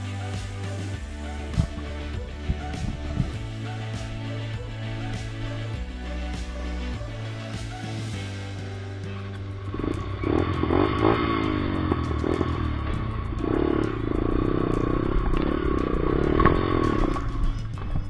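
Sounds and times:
dirt bike engine revving: 9.5s - 17.7s
bike rattling over rough ground: 9.8s - 18.0s.

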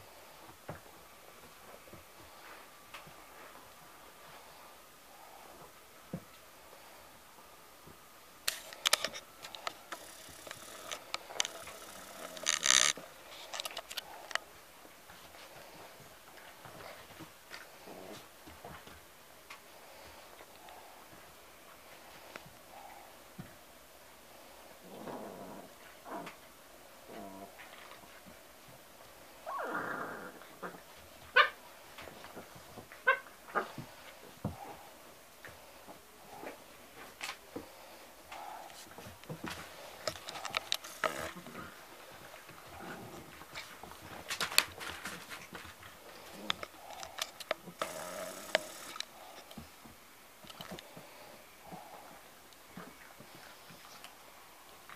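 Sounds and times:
scuffling clicks: 8.5s - 14.4s, 38.7s - 41.6s.

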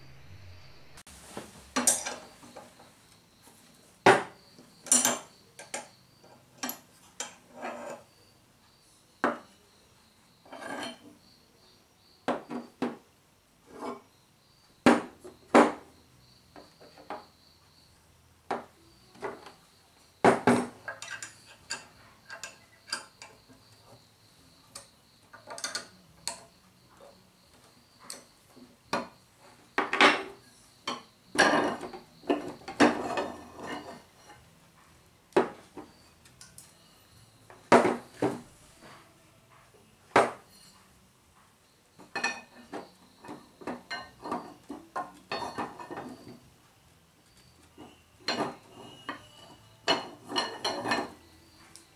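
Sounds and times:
parts set down on wooden workbench: 1.2s - 2.9s, 4.0s - 5.9s, 12.3s - 13.0s, 14.8s - 15.9s, 18.5s - 19.6s, 20.2s - 23.0s, 29.8s - 34.0s, 35.4s - 36.0s, 37.5s - 39.0s, 40.1s - 40.6s, 47.8s - 49.2s
steel tools clinking and knocking: 1.8s - 2.6s, 4.1s - 8.1s, 10.4s - 11.1s, 20.3s - 23.5s, 24.7s - 26.5s, 29.8s - 34.4s, 42.0s - 46.4s, 47.3s - 51.9s.

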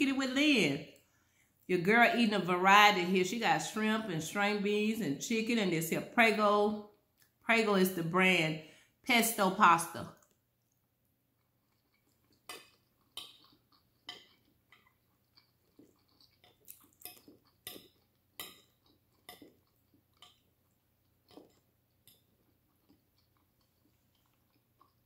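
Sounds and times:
chewing: 10.1s - 25.0s.

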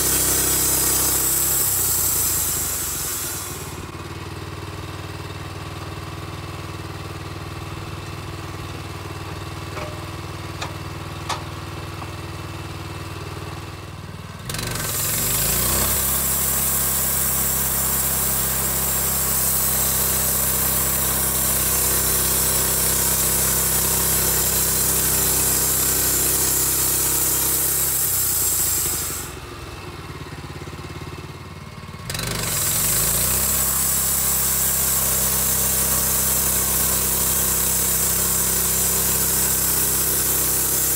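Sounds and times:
band saw cutting log hiss: 0.0s - 4.0s, 14.5s - 29.7s, 32.3s - 40.9s
gas engine idling and revving: 0.0s - 40.9s.

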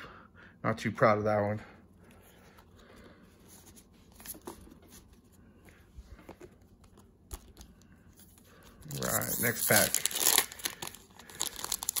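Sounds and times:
cards rustling: 3.6s - 12.0s.

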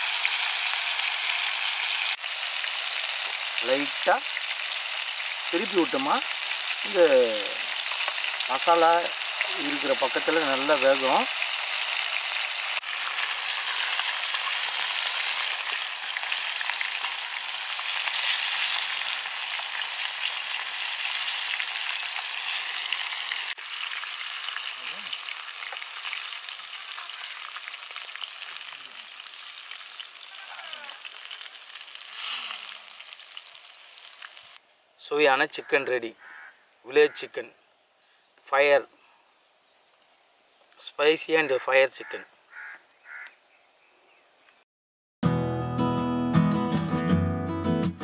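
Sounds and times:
chicken sizzling in oil: 0.0s - 34.6s.

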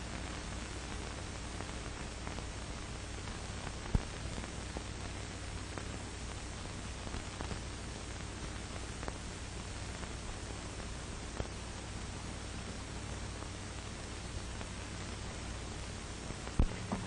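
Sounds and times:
film soundtrack hiss: 0.0s - 17.0s
faint clicks and pops: 0.1s - 9.3s, 14.6s - 17.0s
low hum: 13.7s - 17.0s.

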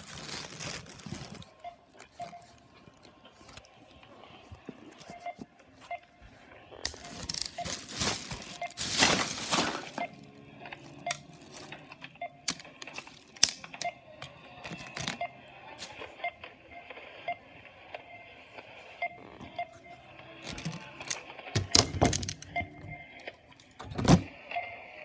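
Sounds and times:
plastic rustling and crinkling: 0.0s - 3.7s, 6.8s - 13.7s, 14.6s - 15.2s, 20.4s - 22.4s
plastic baskets clicking and tapping: 6.9s - 10.2s, 14.6s - 15.2s, 20.5s - 22.6s.

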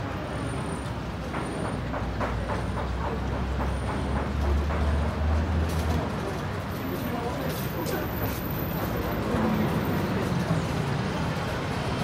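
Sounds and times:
city street noise: 0.0s - 12.0s.

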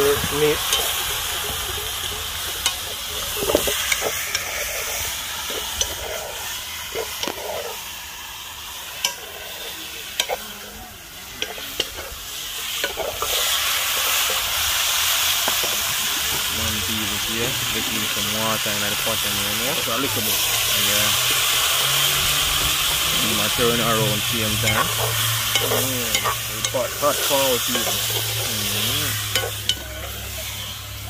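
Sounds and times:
chicken sizzling in hot oil: 0.0s - 31.0s
metal spoon scraping a pot: 2.6s - 7.8s, 9.0s - 10.4s, 11.4s - 14.4s, 19.7s - 30.8s.

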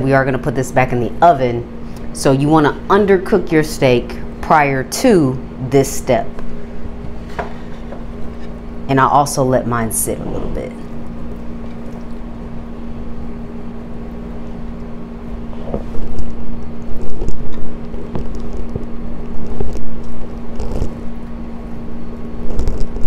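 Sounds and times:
steady low hum: 0.0s - 23.0s
rumbling noise: 9.6s - 11.0s.

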